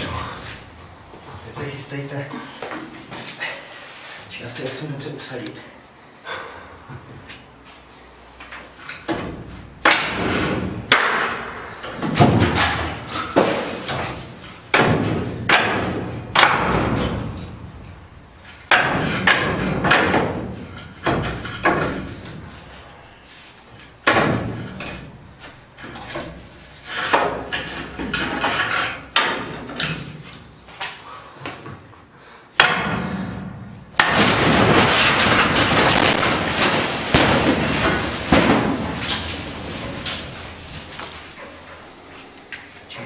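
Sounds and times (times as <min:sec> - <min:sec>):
heavy metal banging: 0:32.6 - 0:41.5.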